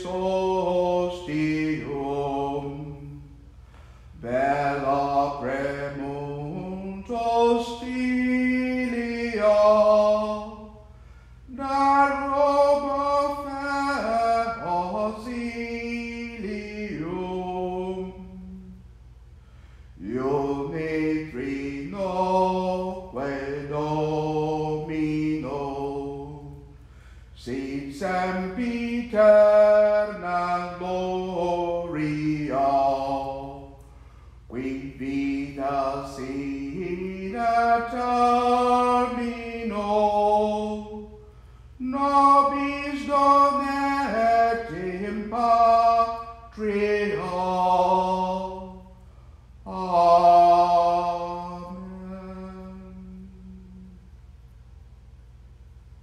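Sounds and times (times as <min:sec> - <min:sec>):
person singing a hymn: 0:00.0 - 0:54.3
breaths: 0:03.5 - 0:04.2, 0:10.9 - 0:11.5, 0:19.3 - 0:20.0, 0:26.7 - 0:27.4, 0:33.8 - 0:34.5, 0:41.2 - 0:41.8, 0:49.0 - 0:49.6.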